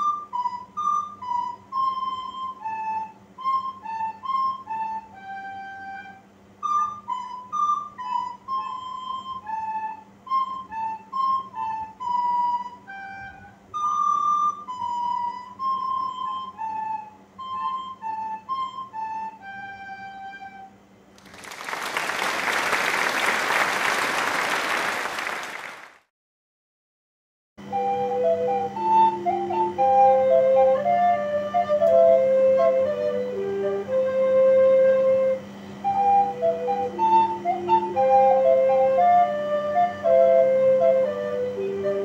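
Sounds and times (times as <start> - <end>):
recorders playing a tune: 0.0 - 21.6, 27.6 - 42.0
applause: 21.2 - 26.1.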